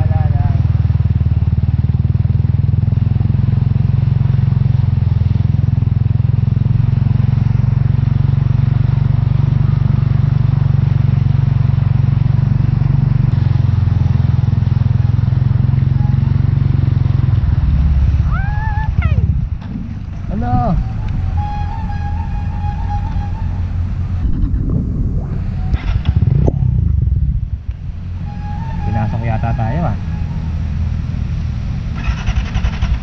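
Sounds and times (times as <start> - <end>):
dirt bike engine running: 0.0 - 33.0
water splashing off wheel: 31.4 - 33.0.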